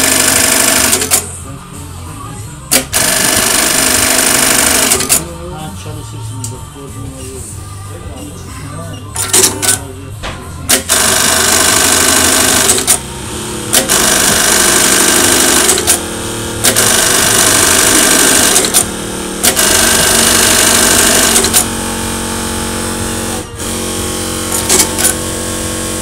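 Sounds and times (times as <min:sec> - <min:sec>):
sewing machine stitching: 0:00.0 - 0:01.3, 0:02.7 - 0:05.2, 0:10.7 - 0:13.0, 0:13.7 - 0:16.0, 0:16.6 - 0:21.8, 0:24.4 - 0:25.6
steady machine hum: 0:00.0 - 0:26.0.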